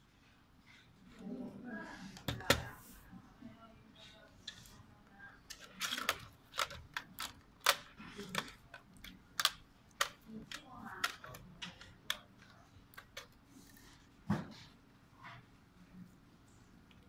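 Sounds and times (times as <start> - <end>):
plastic parts clicking together: 5.5 - 13.4.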